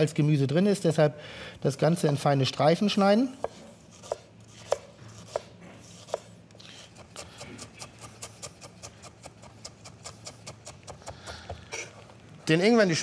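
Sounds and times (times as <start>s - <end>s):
knife chopping on wooden board: 3.3s - 6.3s, 7.1s - 11.9s.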